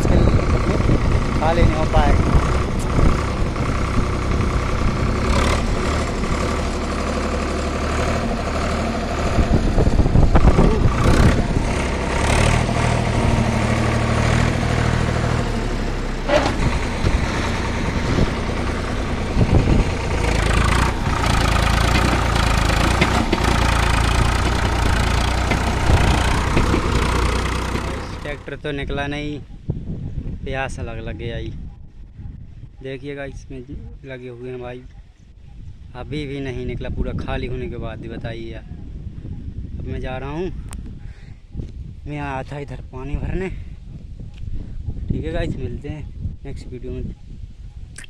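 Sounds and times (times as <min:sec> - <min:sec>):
tractor diesel engine revving: 0:00.0 - 0:28.6.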